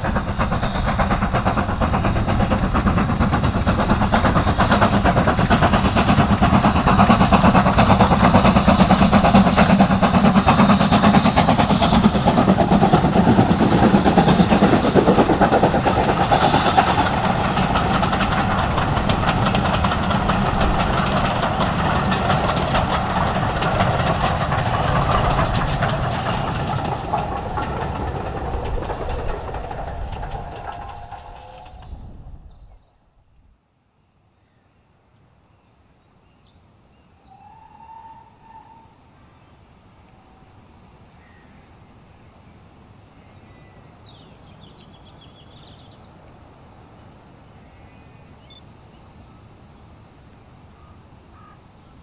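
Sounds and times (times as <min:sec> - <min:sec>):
train coaches rolling on rails: 0:00.0 - 0:32.8
steam locomotive passing: 0:00.0 - 0:33.3, 0:36.7 - 0:52.0.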